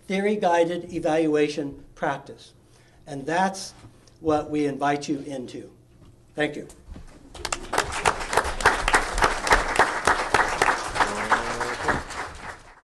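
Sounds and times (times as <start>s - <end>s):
audience applauding: 7.4s - 12.8s.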